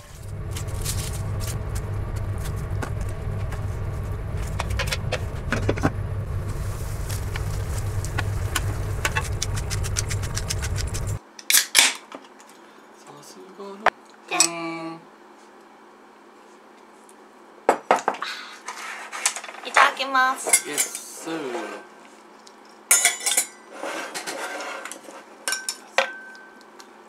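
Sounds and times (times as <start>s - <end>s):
soup boiling in a pot: 0.0s - 11.2s.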